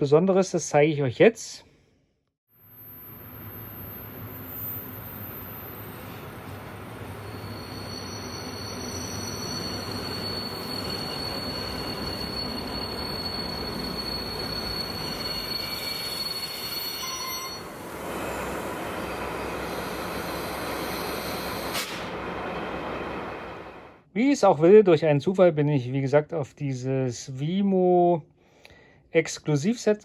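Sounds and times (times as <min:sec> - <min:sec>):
thin high-pitched whine: 0:02.6 - 0:17.7.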